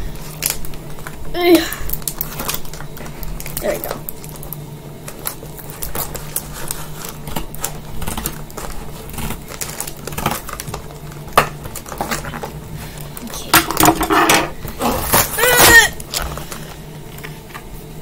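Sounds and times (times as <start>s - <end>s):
packaging rustling: 0.0s - 17.9s
scissors snipping cardboard and plastic: 5.1s - 12.5s.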